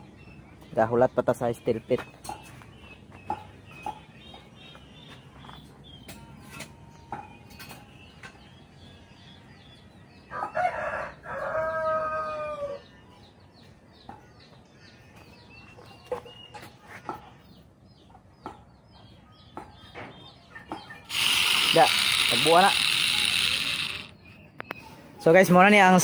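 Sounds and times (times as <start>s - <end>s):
rooster crowing: 10.3s - 12.9s.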